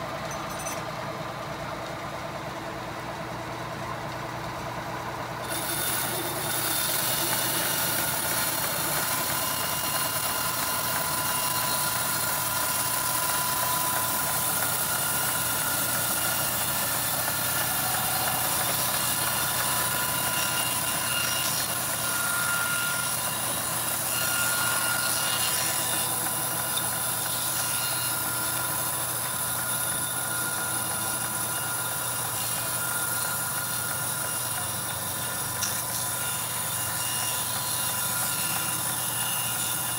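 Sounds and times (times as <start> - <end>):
band saw cutting log: 5.4 - 39.9.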